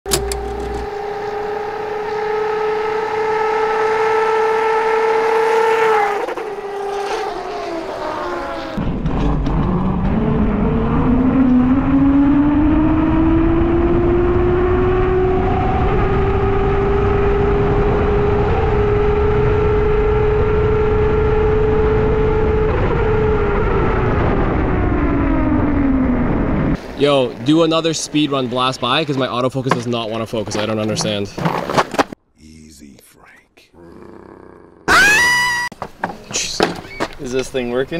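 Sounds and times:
electric motor whining: 0:00.1 - 0:02.4
wind rushing over microphone: 0:08.8 - 0:27.0.

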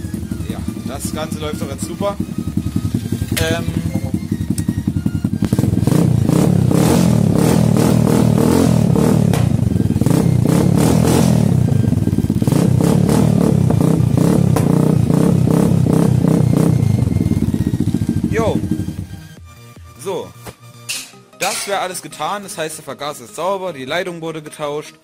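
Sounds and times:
small motorcycle engine running: 0:00.0 - 0:19.4.

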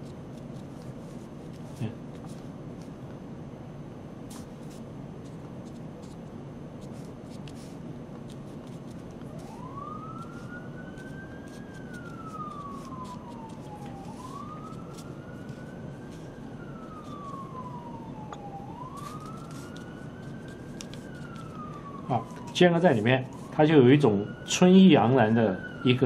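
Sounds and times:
emergency vehicle siren wailing: 0:08.6 - 0:26.0.

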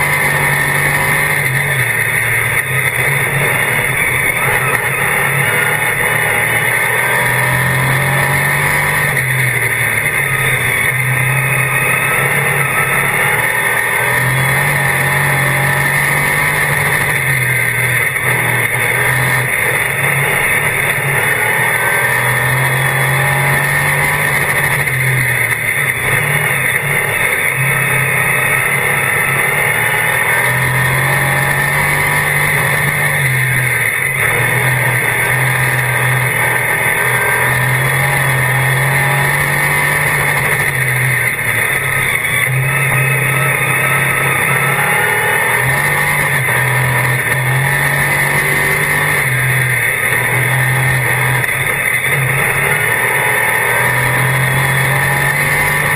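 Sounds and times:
race car engine revving: 0:00.0 - 0:55.9.

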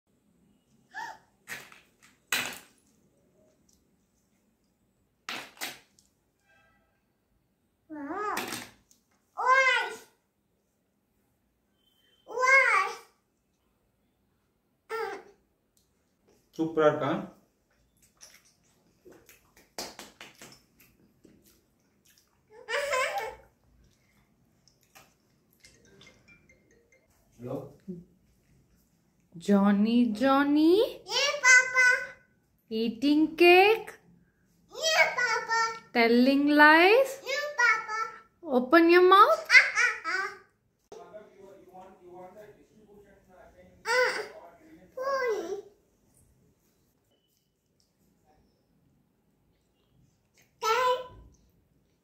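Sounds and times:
brief high squeak: 0:11.7 - 0:12.3.

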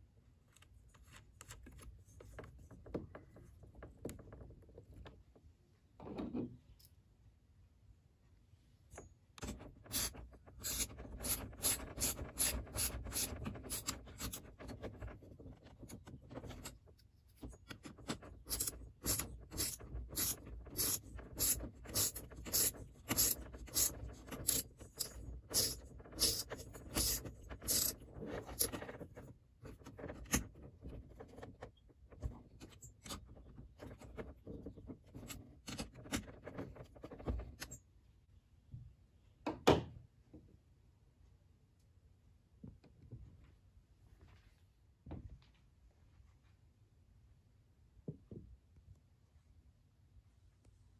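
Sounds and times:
ratchet wrench clicking: 0:18.5 - 0:27.9.

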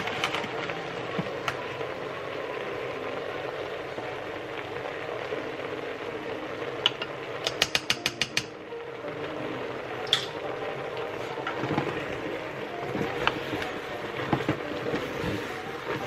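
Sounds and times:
meat sizzling in a pot: 0:00.0 - 0:16.0
utensils clicking against pot: 0:06.8 - 0:08.5, 0:10.0 - 0:10.4.

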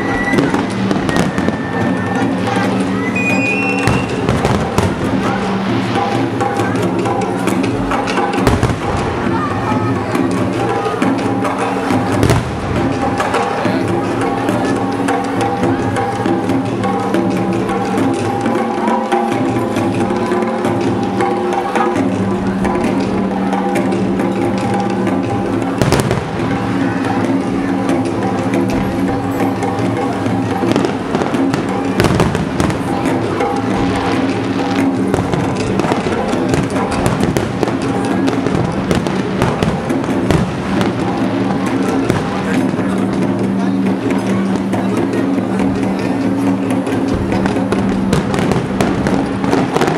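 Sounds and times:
fireworks bursting: 0:00.0 - 0:14.9, 0:25.7 - 0:44.8, 0:47.0 - 0:49.9
drum and wood-block hits: 0:00.0 - 0:49.9
loud music with sustained tones: 0:00.0 - 0:49.9.

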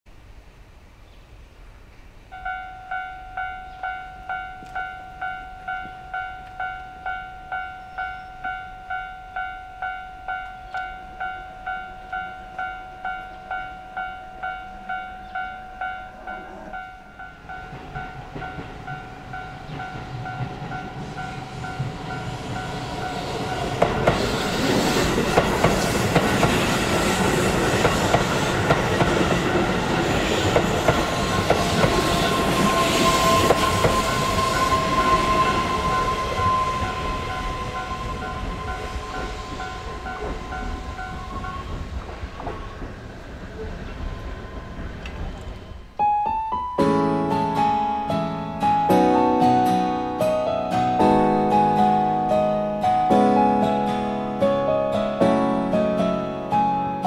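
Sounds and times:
electric train passing: 0:00.2 - 0:57.0
steady high tone: 0:02.3 - 0:42.0, 0:45.7 - 0:57.0
level crossing bell ringing: 0:02.4 - 0:23.8
train wheel clacks: 0:17.3 - 0:45.7.

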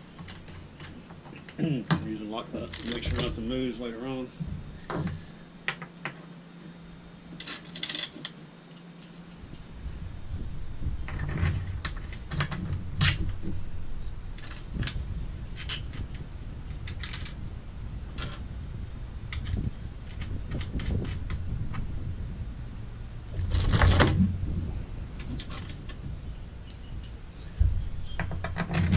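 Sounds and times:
low rumble: 0:09.3 - 0:28.9.

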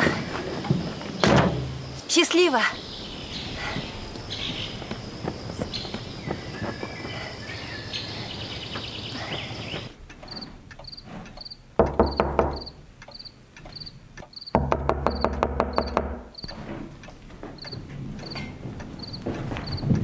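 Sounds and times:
cricket chirping: 0:00.0 - 0:16.6, 0:17.6 - 0:20.0
knocking on a door: 0:11.8 - 0:12.7, 0:14.6 - 0:16.3.

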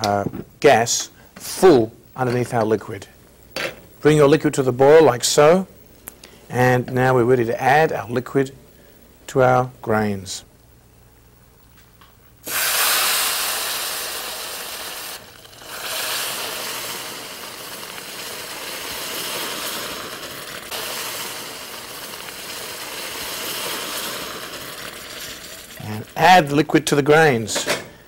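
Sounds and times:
water sizzling in hot pan: 0:12.4 - 0:26.7.

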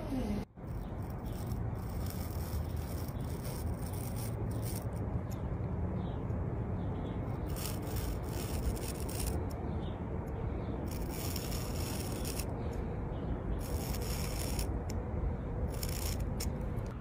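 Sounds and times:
knife blade scraping thread: 0:00.6 - 0:05.0, 0:07.4 - 0:09.6, 0:10.8 - 0:12.5, 0:13.6 - 0:14.8, 0:15.7 - 0:16.6.

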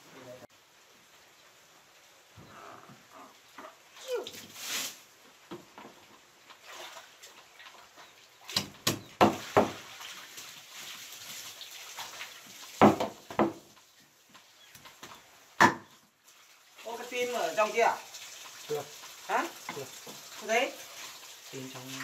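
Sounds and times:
cleaver chopping on wooden block: 0:15.6 - 0:15.9.

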